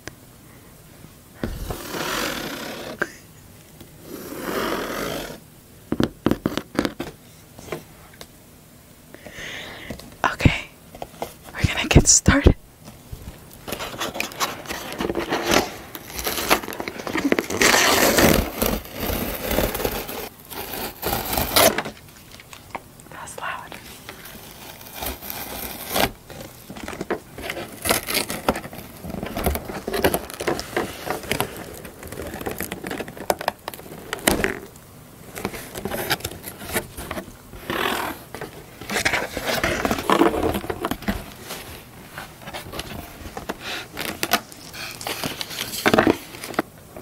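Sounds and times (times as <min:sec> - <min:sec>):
cardboard flaps scraping: 0:01.4 - 0:03.0, 0:13.0 - 0:22.4, 0:23.9 - 0:46.7
packing paper crackling: 0:13.2 - 0:47.0
packing tape ripping: 0:13.7 - 0:22.0, 0:24.1 - 0:41.4, 0:42.6 - 0:46.6.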